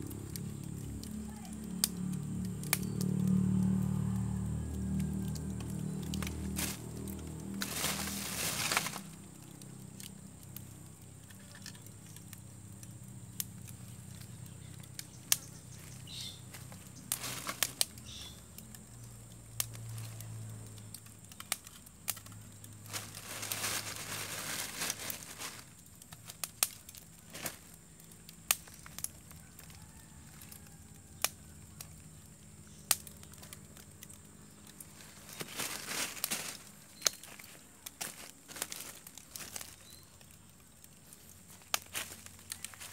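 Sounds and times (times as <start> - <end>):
wood fire crackling and popping: 0.0 - 42.9
wood rustling and scraping: 6.0 - 9.3, 21.6 - 27.7, 34.7 - 42.9.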